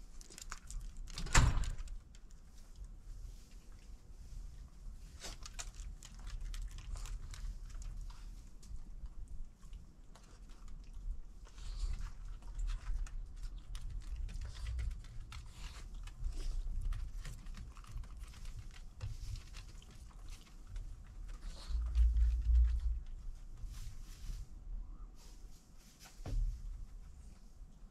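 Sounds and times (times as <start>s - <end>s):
dogs chewing: 2.0s - 23.7s.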